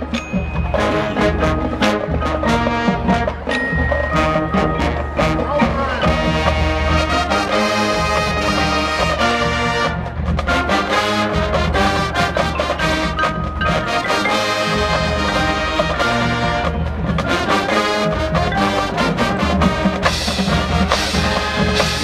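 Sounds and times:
marching band playing: 0:00.0 - 0:22.0.

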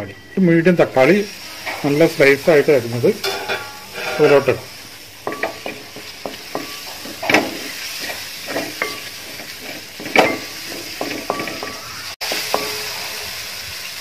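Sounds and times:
food sizzling: 0:00.0 - 0:14.0
spatula knocking metal pot: 0:03.2 - 0:04.4, 0:05.3 - 0:07.6, 0:10.0 - 0:11.8
spatula scraping in a pot: 0:03.2 - 0:13.2.

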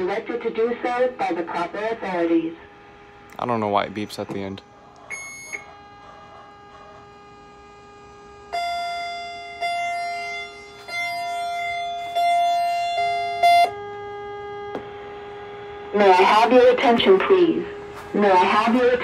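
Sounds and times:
evacuation message over speaker: 0:00.0 - 0:02.7, 0:15.9 - 0:19.0
steady amplifier hum: 0:00.0 - 0:19.0
short electronic beep: 0:05.1 - 0:05.7
held electronic tones stepping in pitch: 0:08.3 - 0:16.7.

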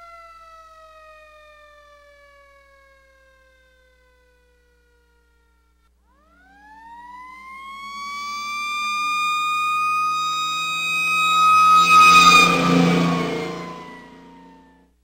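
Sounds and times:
fire engine siren: 0:00.0 - 0:14.9
truck engine running: 0:07.7 - 0:14.6.

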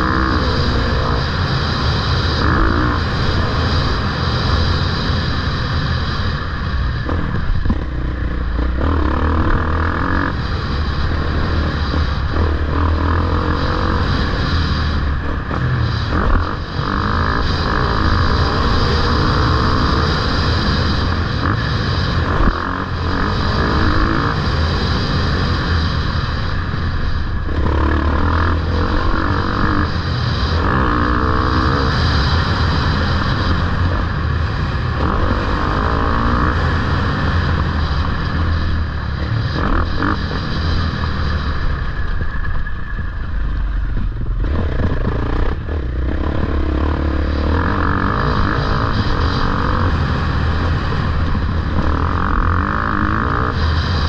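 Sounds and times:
dirt bike engines running: 0:00.0 - 0:54.0.

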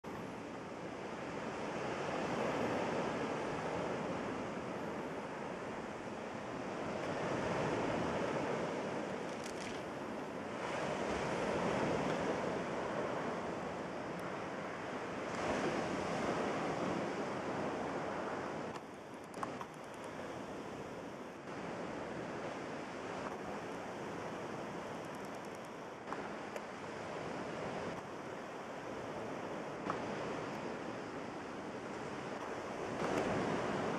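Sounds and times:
waves washing over pebbles: 0:06.8 - 0:13.6.

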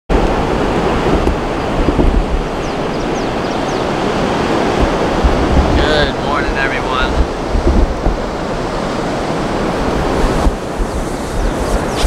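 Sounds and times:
surf breaking on beach: 0:00.1 - 0:12.0
wind on microphone: 0:00.1 - 0:12.0
high falling chirps: 0:10.6 - 0:12.0.

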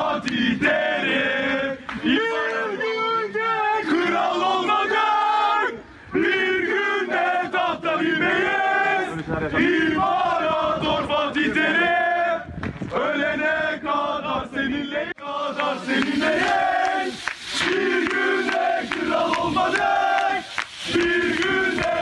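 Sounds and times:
football crowd chanting: 0:00.0 - 0:22.0.

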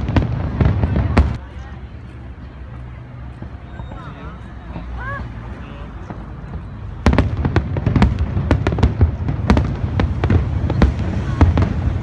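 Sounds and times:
fireworks cracking: 0:00.0 - 0:01.4, 0:06.0 - 0:12.0
loud firework report: 0:00.0 - 0:12.0.

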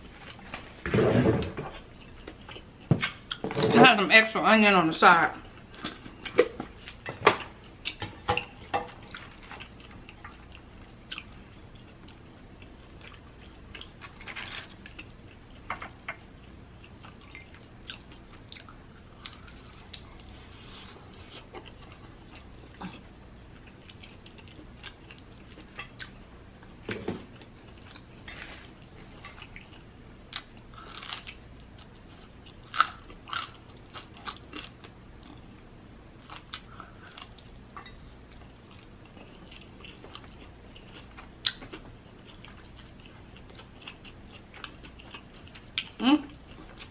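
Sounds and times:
person chewing: 0:01.8 - 0:03.4, 0:05.5 - 0:15.7, 0:16.4 - 0:35.5, 0:36.2 - 0:46.9
crunching crispy tacos: 0:30.4 - 0:34.8.

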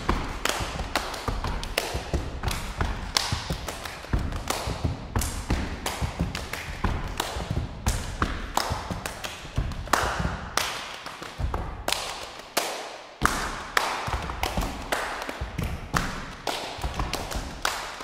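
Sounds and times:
foot stomps on wooden floor: 0:00.0 - 0:10.6
slaps on the body: 0:00.0 - 0:12.4, 0:13.2 - 0:18.0
hand claps: 0:00.0 - 0:18.0.

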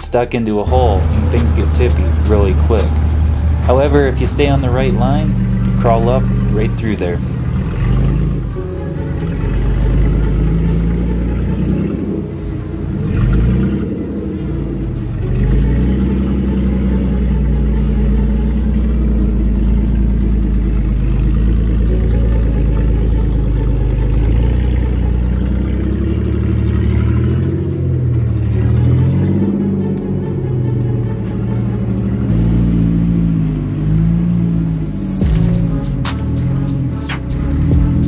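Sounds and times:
buggy engine revving under load: 0:00.6 - 0:38.0.

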